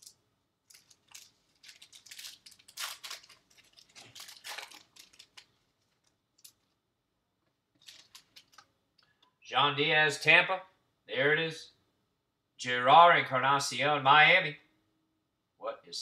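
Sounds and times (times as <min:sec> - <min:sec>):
cards and packaging rustling: 0:00.0 - 0:06.8, 0:07.7 - 0:08.7.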